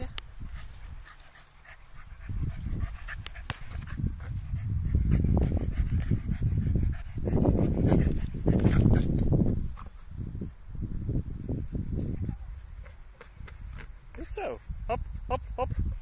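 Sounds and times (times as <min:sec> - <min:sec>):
dog panting: 0:00.5 - 0:09.0.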